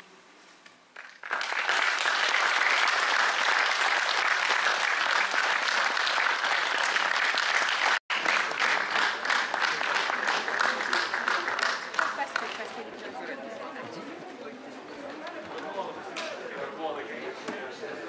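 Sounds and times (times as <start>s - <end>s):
audience applauding: 1.0s - 12.8s.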